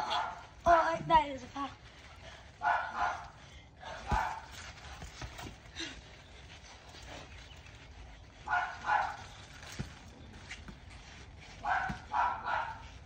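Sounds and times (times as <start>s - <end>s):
dog barking: 2.6s - 3.3s, 4.1s - 4.4s, 8.5s - 9.2s, 11.6s - 12.8s.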